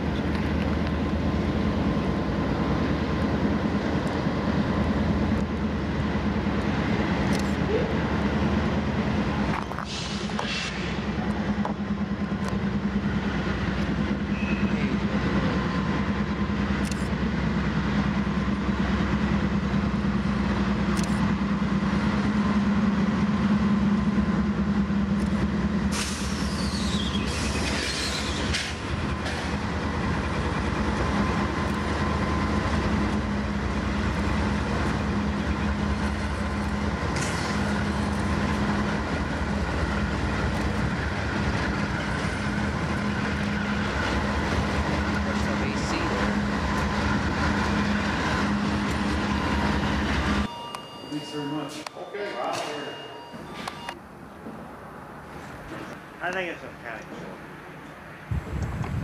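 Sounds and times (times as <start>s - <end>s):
diesel locomotive engine drone: 0.0s - 59.0s
train wheels clicking over rail joints: 8.5s - 50.5s
high wheel squeal: 14.2s - 15.0s, 25.9s - 28.8s, 47.8s - 54.0s.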